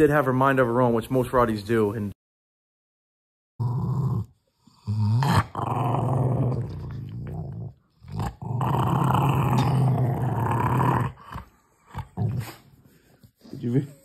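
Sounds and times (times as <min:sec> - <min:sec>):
dog growling low: 0:03.6 - 0:12.7.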